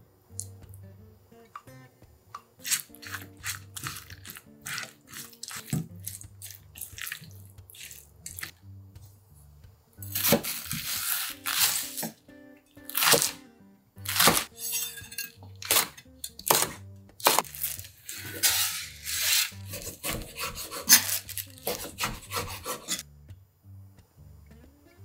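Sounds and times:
soft background music: 0:00.0 - 0:25.0
knife cutting on wooden board: 0:02.6 - 0:07.2, 0:10.1 - 0:12.1, 0:18.2 - 0:23.0
aluminium foil crinkling: 0:02.6 - 0:08.5, 0:10.2 - 0:12.0, 0:17.2 - 0:19.6, 0:20.9 - 0:21.8
knife scraping board: 0:10.1 - 0:11.8, 0:18.0 - 0:23.0.

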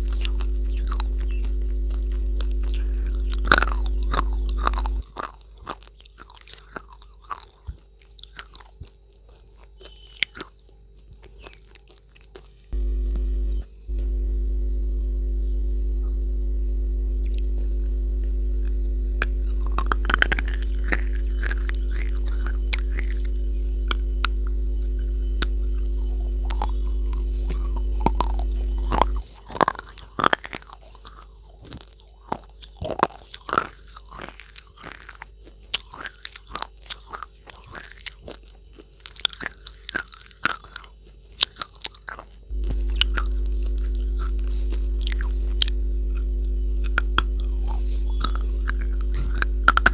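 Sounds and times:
low hum: 0:00.0 - 0:05.6, 0:12.7 - 0:32.2, 0:42.5 - 0:49.9
crisp crunching and chewing: 0:00.0 - 0:14.2, 0:17.2 - 0:49.9.

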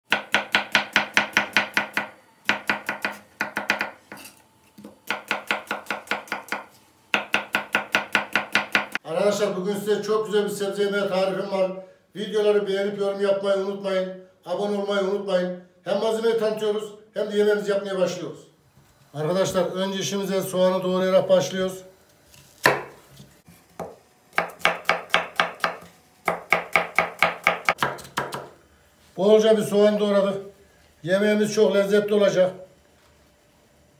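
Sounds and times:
knife chopping on wooden board: 0:00.1 - 0:09.0, 0:22.6 - 0:23.2, 0:23.8 - 0:28.6.

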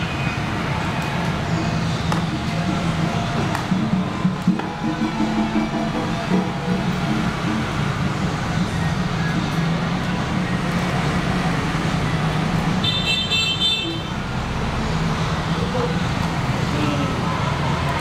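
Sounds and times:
road traffic noise: 0:00.0 - 0:18.0.

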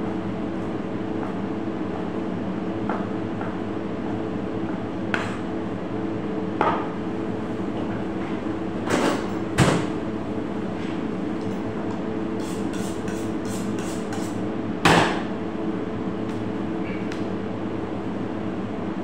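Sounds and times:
steady machine hum: 0:00.0 - 0:19.0
knife honing on sharpening steel: 0:12.4 - 0:14.4.

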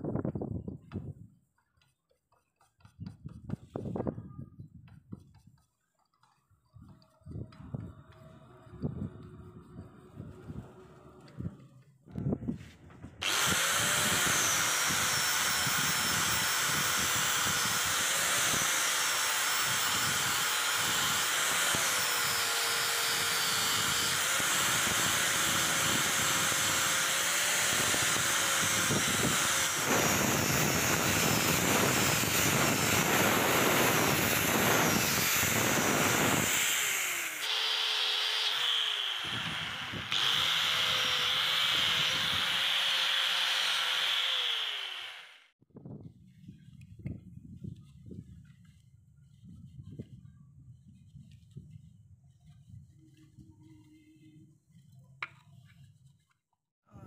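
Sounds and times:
angle grinder grinding metal: 0:13.2 - 0:45.5.

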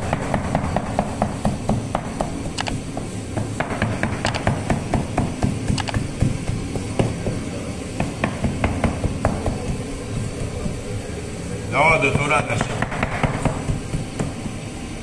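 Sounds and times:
dough scraper tapping dough: 0:12.6 - 0:14.4.

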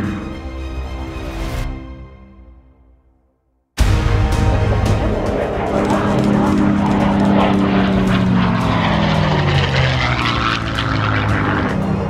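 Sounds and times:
propeller plane engine drone: 0:00.0 - 0:01.6, 0:03.8 - 0:12.0.

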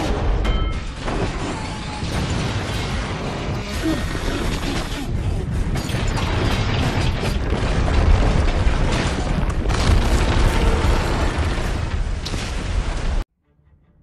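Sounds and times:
rumble of crashing debris: 0:05.4 - 0:13.2.

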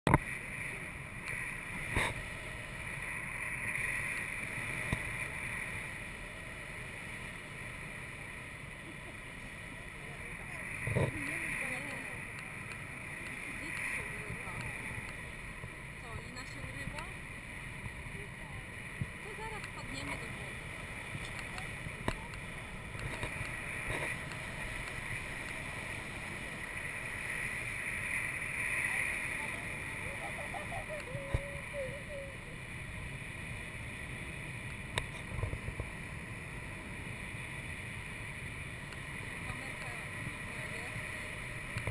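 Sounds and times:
wind rushing over camera: 0:00.1 - 0:41.9
faint clicks: 0:12.2 - 0:15.2, 0:19.0 - 0:20.2, 0:20.8 - 0:25.9, 0:34.6 - 0:35.9, 0:41.0 - 0:41.9.

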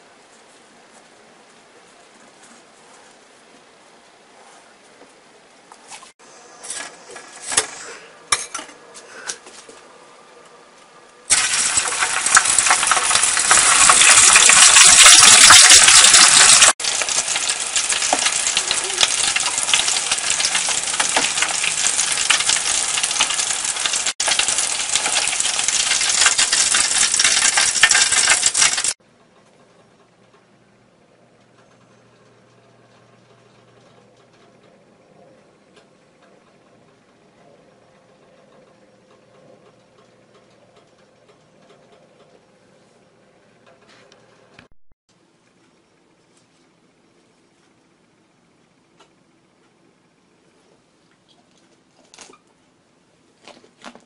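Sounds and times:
deep-frying sizzling oil: 0:11.3 - 0:29.0.

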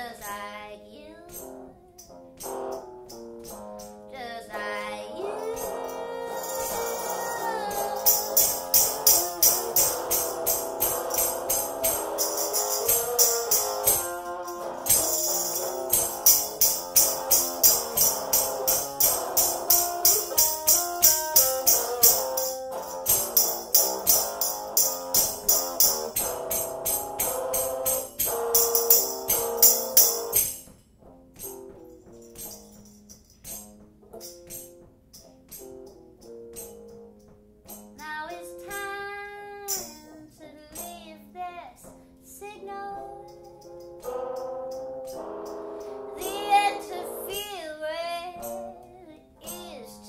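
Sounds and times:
percussion strikes: 0:01.3 - 0:04.1, 0:05.4 - 0:41.2, 0:43.2 - 0:49.8
keyboard chords: 0:01.3 - 0:40.2, 0:41.8 - 0:50.0
person singing: 0:04.1 - 0:22.6, 0:38.0 - 0:43.6, 0:45.8 - 0:50.0
tambourine shaken on a beat: 0:05.4 - 0:30.7, 0:31.4 - 0:39.0, 0:39.7 - 0:41.1, 0:43.2 - 0:47.8, 0:48.4 - 0:48.7, 0:49.4 - 0:50.0.

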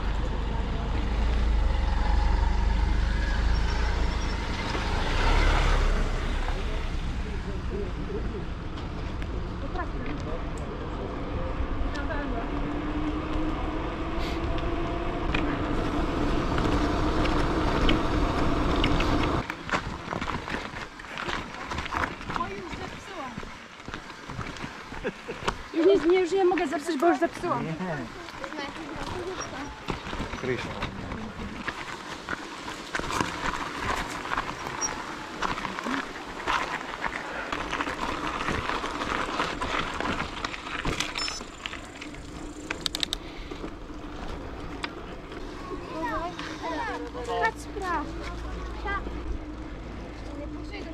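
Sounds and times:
bike tyres rolling on rough path: 0:00.0 - 0:50.9
bike rattles and clicks: 0:11.6 - 0:27.5, 0:28.1 - 0:50.9.

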